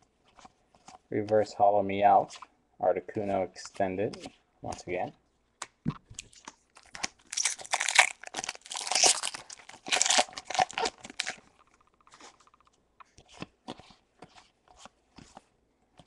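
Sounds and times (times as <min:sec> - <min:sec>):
foil wrapper tearing and crinkling: 0:06.7 - 0:11.5.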